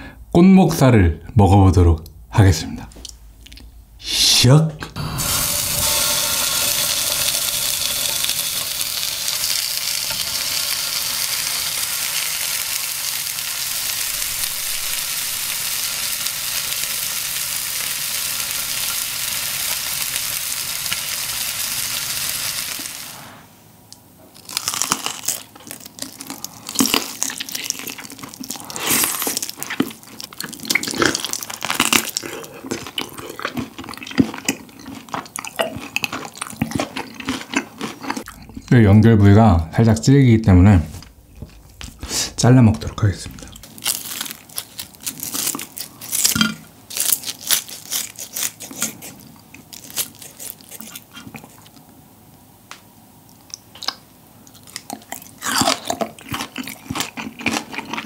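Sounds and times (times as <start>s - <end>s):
pork sizzling in a grill pan: 5.0s - 23.4s.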